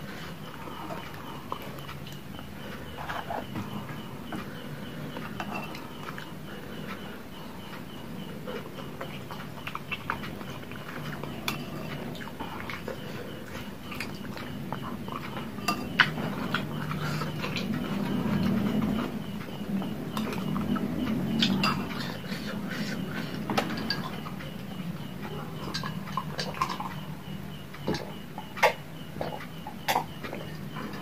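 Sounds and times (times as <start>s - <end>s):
chewing and mouth noises: 0.0s - 31.0s.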